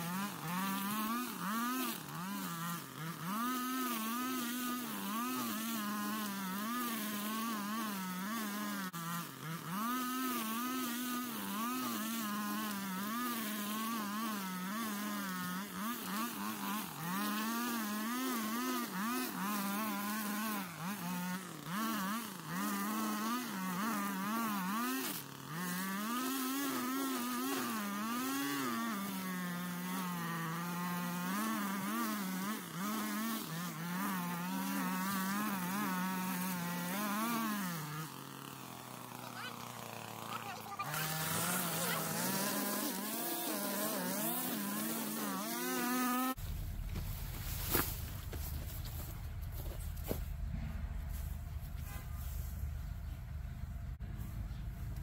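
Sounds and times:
string trimmer engine cutting grass: 0.0 - 55.0.

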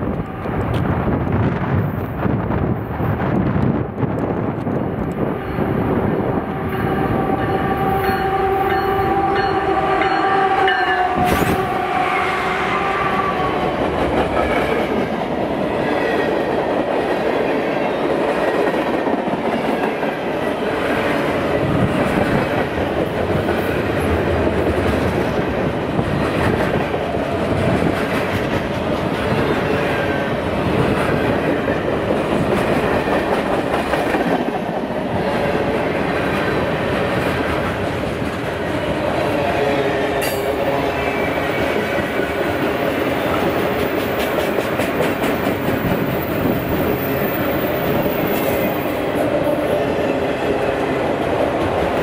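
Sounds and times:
locomotive horn: 6.4 - 13.9
train wheels clattering on rails: 13.6 - 39.3, 40.1 - 52.0.

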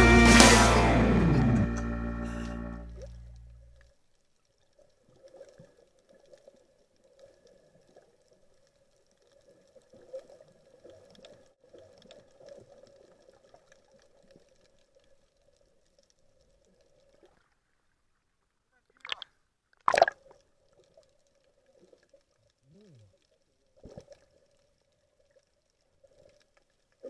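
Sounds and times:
background music: 0.0 - 3.6
low underwater hum: 0.0 - 19.2
faint clicks and crackles: 2.9 - 18.1, 19.0 - 27.0.

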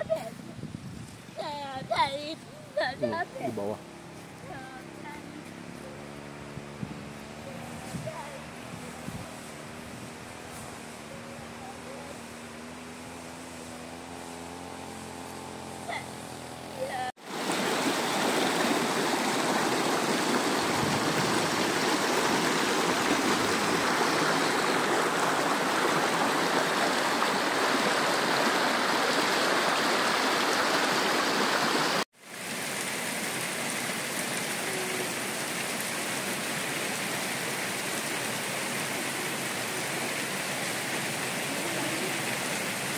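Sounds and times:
steady rain: 1.4 - 16.2, 16.8 - 42.9
river rushing over rocks: 17.2 - 42.9.

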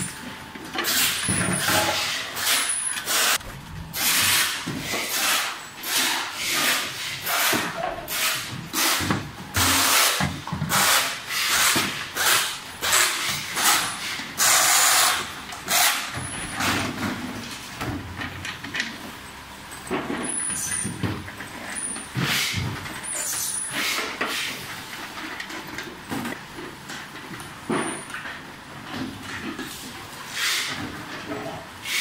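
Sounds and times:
pneumatic screwdriver air hiss: 9.7 - 16.0.

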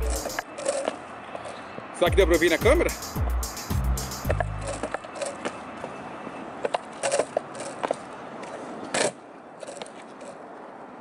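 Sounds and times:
skateboard deck creaking and cracking: 0.2 - 1.8, 4.2 - 5.9, 6.5 - 11.0.

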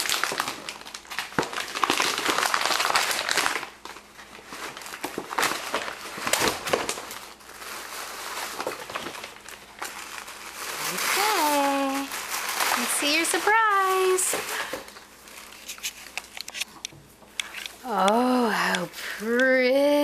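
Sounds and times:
wrapping paper crinkling: 0.0 - 16.8.

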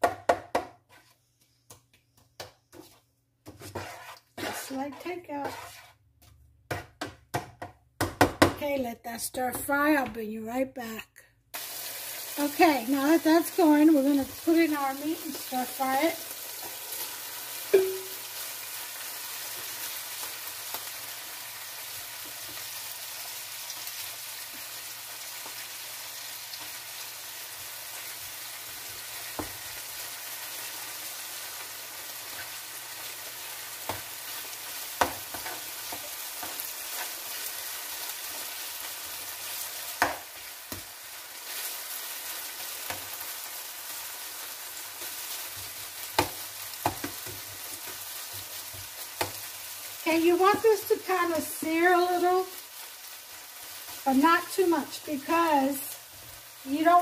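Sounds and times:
meat scraped into pan knock: 2.4 - 7.1
beef sizzling in a skillet: 11.5 - 57.0.

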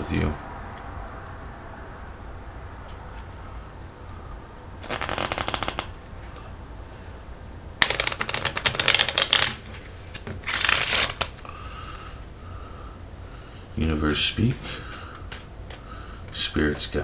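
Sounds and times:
playing cards being shuffled: 4.8 - 6.0, 7.8 - 11.4.

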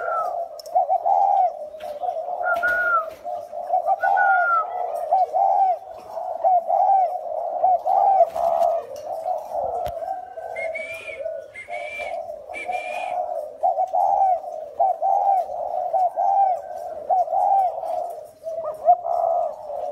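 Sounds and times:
doves cooing: 0.0 - 19.9
high whistled notes: 10.5 - 13.2.

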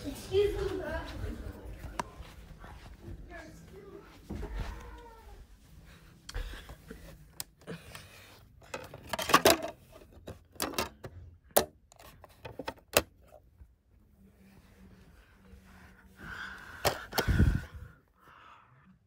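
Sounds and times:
plastic case clicks and rattles: 8.6 - 13.1.

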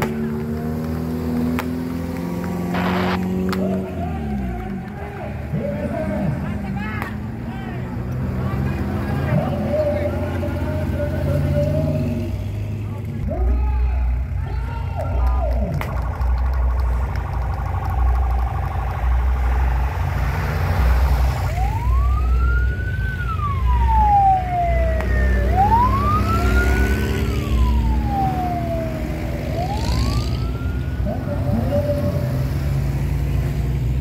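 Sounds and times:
off-road engines rumbling: 0.0 - 34.0
siren wailing: 2.7 - 4.8, 15.4 - 32.7.

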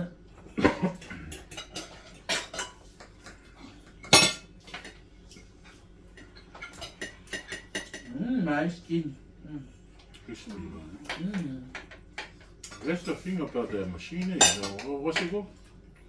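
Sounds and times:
forks clinking on ceramic plates: 1.3 - 3.3, 6.2 - 8.1, 14.4 - 15.4.

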